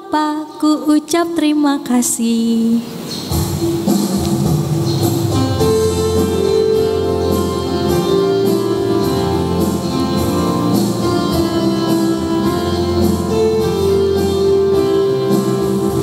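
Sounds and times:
instrumental backing music: 0:02.8 - 0:16.0
light percussion beat: 0:03.2 - 0:16.0.

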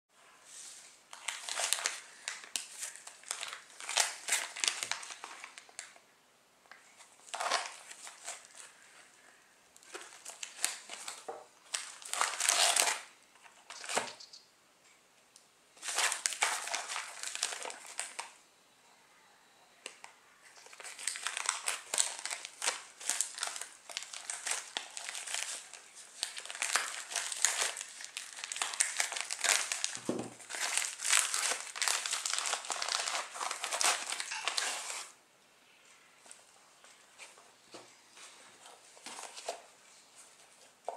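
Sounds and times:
plastic bag crinkling: 0:01.1 - 0:05.9, 0:15.8 - 0:18.4, 0:20.6 - 0:35.2.

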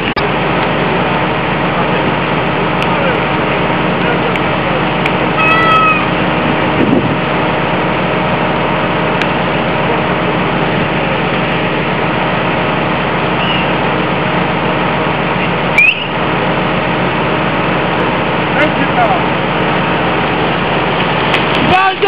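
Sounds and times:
heavy engine idling: 0:00.0 - 0:22.0
sharp crack with squeal: 0:15.8 - 0:16.2.

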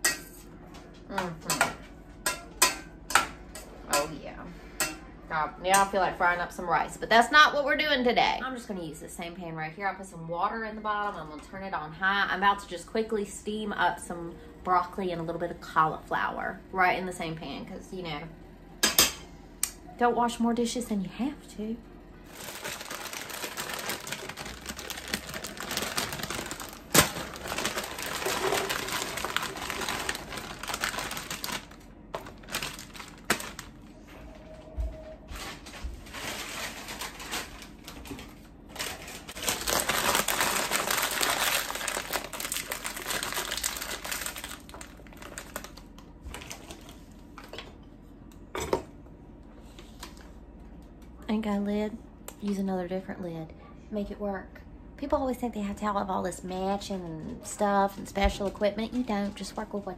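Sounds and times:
crackling crinkling noise: 0:22.2 - 0:47.4.

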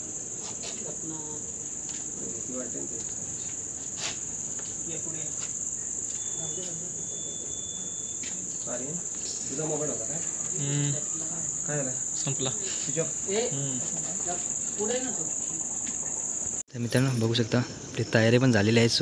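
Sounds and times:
crickets chirring: 0:00.0 - 0:19.0
people talking indistinctly: 0:06.4 - 0:16.3.

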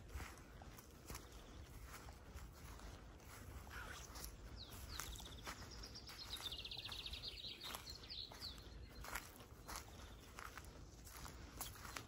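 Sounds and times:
soft footsteps on grass: 0:00.0 - 0:12.0
songbird trilling: 0:03.7 - 0:09.2.

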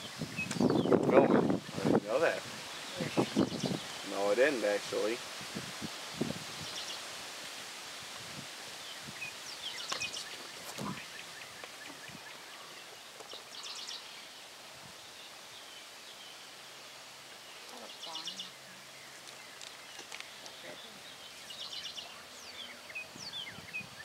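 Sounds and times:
songbird trilling: 0:02.7 - 0:04.1, 0:08.8 - 0:14.3, 0:17.5 - 0:24.0.

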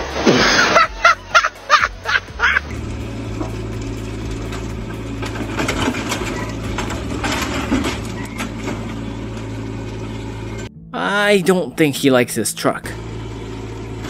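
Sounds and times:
diesel engine running: 0:00.0 - 0:14.0
steel tracks clanking and scraping: 0:02.6 - 0:10.7.

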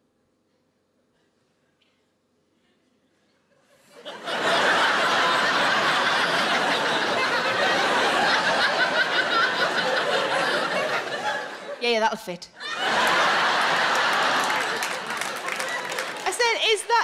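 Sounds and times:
large audience laughing: 0:03.7 - 0:11.8, 0:12.6 - 0:17.0.

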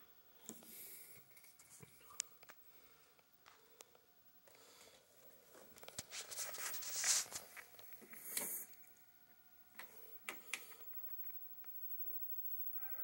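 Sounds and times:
faint rustling and handling: 0:04.5 - 0:09.0.

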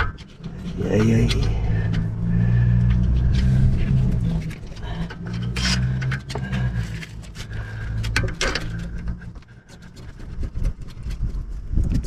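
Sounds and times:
steady low rumble: 0:00.0 - 0:12.0
screwdriver clicking and scraping metal: 0:02.9 - 0:12.0.

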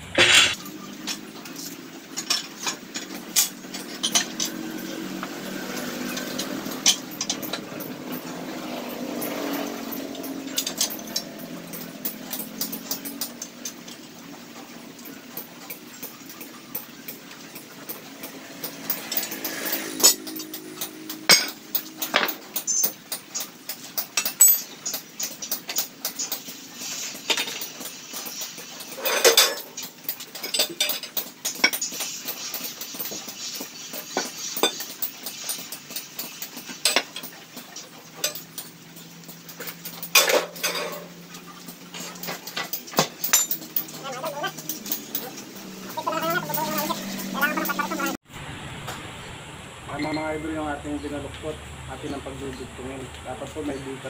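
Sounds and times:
tube bender metal clanks: 0:27.1 - 0:48.2.

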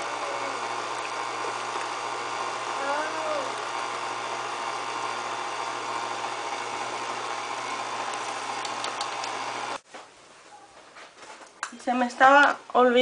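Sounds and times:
stand mixer churning dough: 0:00.0 - 0:09.8.

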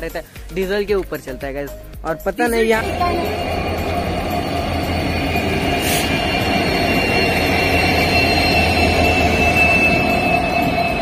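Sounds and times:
diesel locomotive passing: 0:02.6 - 0:11.0.

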